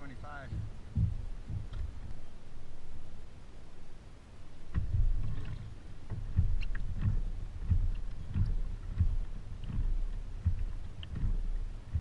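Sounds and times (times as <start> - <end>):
hull and water noise: 0.0 - 12.0
kayak pedal thump and click: 0.1 - 2.4, 4.7 - 12.0.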